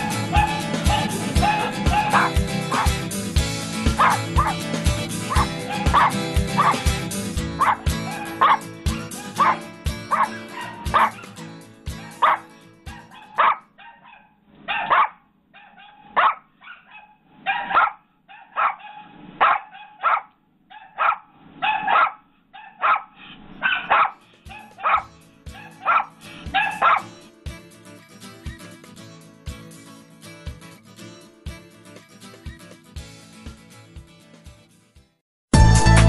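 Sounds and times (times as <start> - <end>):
small dog yapping: 0.3 - 3.0, 4.0 - 4.6, 5.3 - 6.8, 7.6 - 8.6, 9.2 - 11.4, 12.0 - 27.1.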